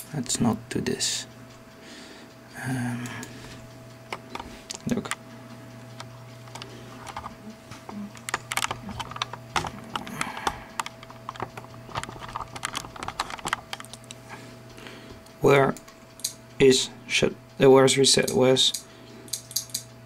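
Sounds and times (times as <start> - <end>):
steady low hum: 0.0 - 20.0
laptop clicking and tapping: 4.1 - 5.2, 6.0 - 14.2.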